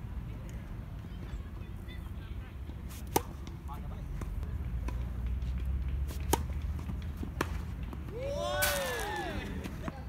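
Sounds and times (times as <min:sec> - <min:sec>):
tennis ball bouncing: 0:02.7 - 0:10.0
tennis racket hitting ball: 0:02.9 - 0:09.8.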